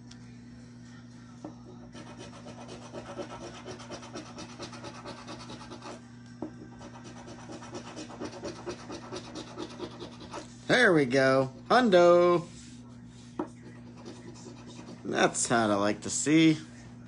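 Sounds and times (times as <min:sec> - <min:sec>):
low electrical hum: 0:00.0 - 0:17.0
coin scratching lottery ticket: 0:01.9 - 0:06.0, 0:06.8 - 0:10.4, 0:13.7 - 0:15.2.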